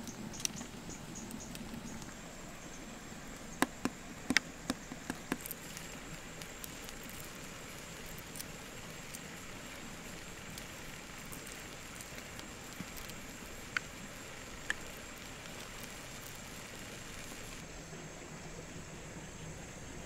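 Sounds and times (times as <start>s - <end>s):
steady background hiss: 0.0s - 20.0s
egg shell crackling: 0.1s - 17.6s.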